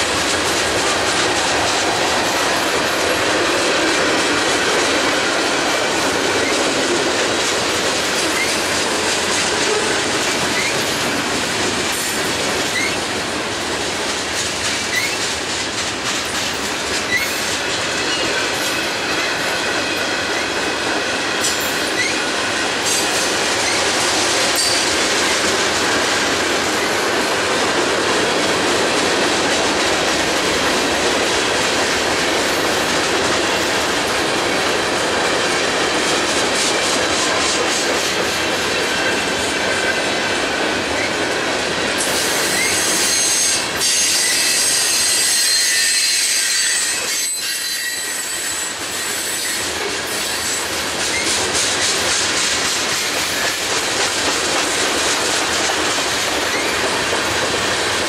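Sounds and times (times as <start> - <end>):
train wheels clattering over rail joints: 0.0 - 45.8, 48.0 - 58.0
high-pitched wheel squeal: 42.4 - 49.6.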